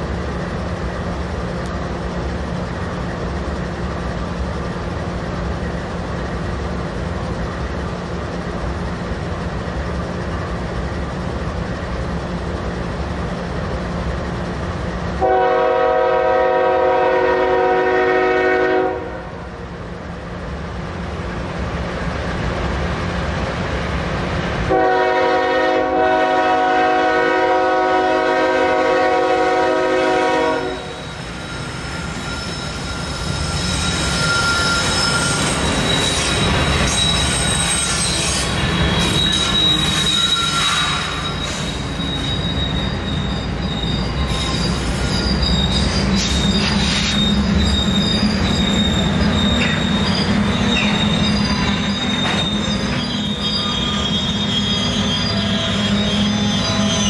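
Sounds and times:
train rumbling past: 0.0s - 57.0s
locomotive air horn blasts: 15.2s - 19.4s, 24.7s - 31.0s
high-pitched wheel squeal: 30.6s - 57.0s.

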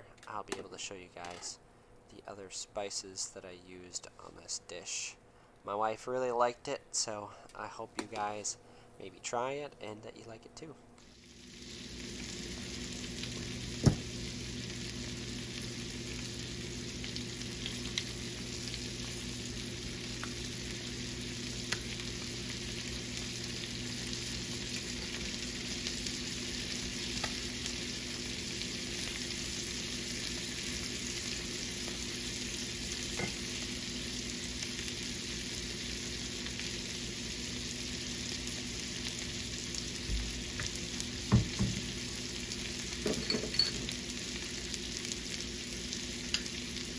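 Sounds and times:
food frying in skillet: 11.0s - 46.9s.

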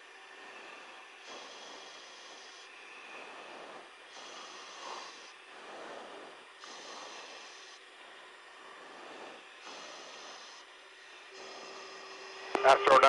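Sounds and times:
radio static hiss: 11.4s - 13.0s.

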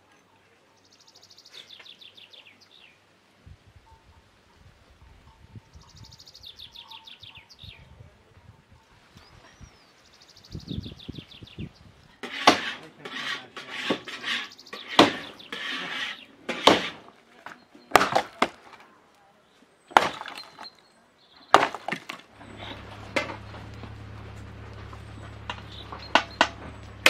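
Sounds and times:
dry wood snapping: 16.5s - 18.9s, 19.9s - 20.8s, 21.5s - 27.0s.

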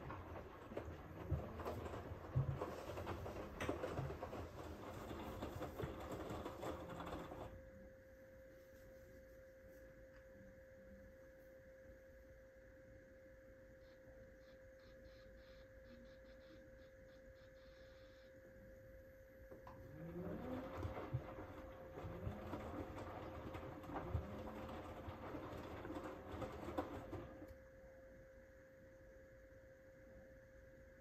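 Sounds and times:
washing machine drum tumbling: 0.0s - 7.5s, 19.6s - 27.5s
faint machine hum: 0.0s - 31.0s.

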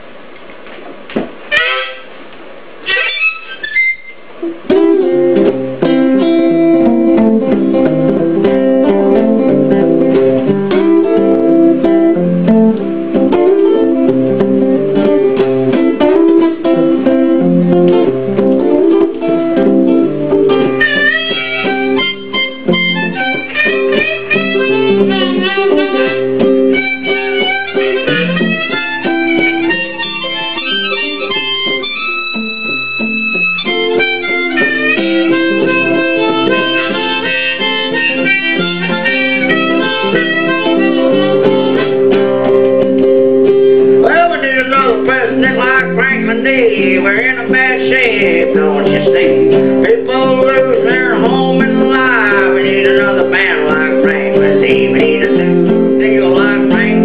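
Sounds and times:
guitar accompaniment: 0.0s - 57.0s
high wavering melody: 1.5s - 2.1s, 20.7s - 42.4s.

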